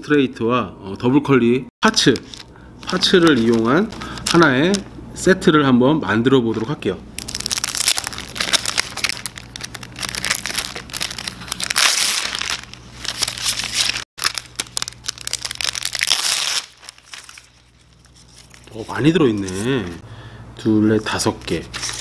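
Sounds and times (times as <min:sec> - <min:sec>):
plastic packets crinkling: 0:02.0 - 0:04.9, 0:06.5 - 0:20.0.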